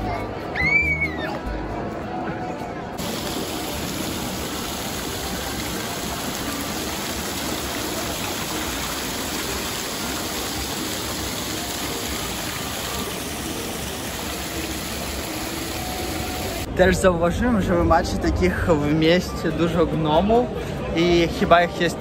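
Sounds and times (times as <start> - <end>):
fountain water pouring and splashing: 3.0 - 16.7.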